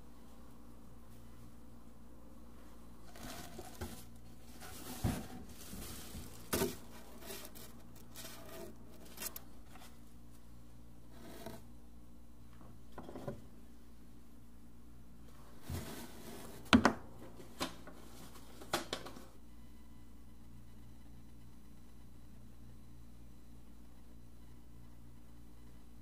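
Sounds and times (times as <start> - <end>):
tissue paper rustling and crinkling: 3.0 - 9.4
handling small items in box: 3.1 - 9.5.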